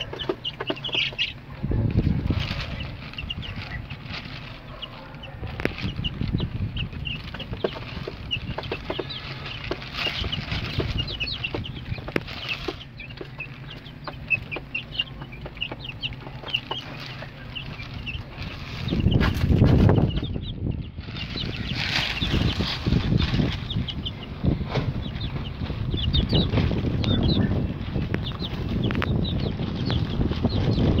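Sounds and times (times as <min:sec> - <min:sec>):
beaks clicking on feed tray: 0:00.0 - 0:01.4, 0:04.6 - 0:20.5, 0:25.0 - 0:31.0
chicks peeping: 0:00.0 - 0:31.0.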